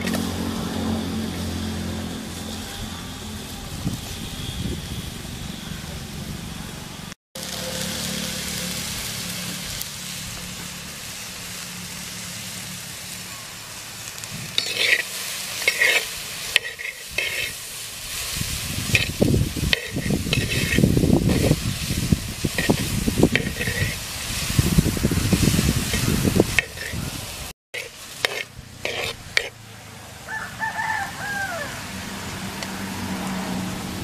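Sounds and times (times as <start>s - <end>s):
vegetables sizzling in a clay pot: 0.0s - 2.7s, 7.4s - 29.7s
spoon scraping and stirring: 14.6s - 17.6s, 18.9s - 21.5s, 22.5s - 24.0s, 25.9s - 27.0s, 27.8s - 29.6s.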